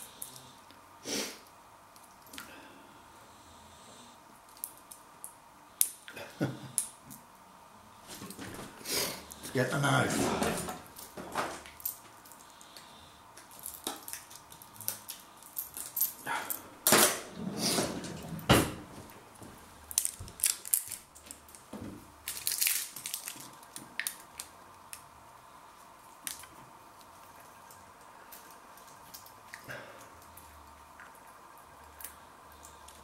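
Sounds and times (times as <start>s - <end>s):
plastic rustling: 19.9s - 24.6s.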